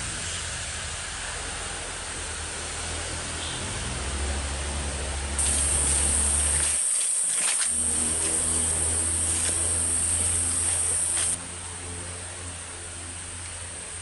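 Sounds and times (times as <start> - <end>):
forest ambience hiss: 0.0 - 14.0
high insect drone: 5.4 - 14.0.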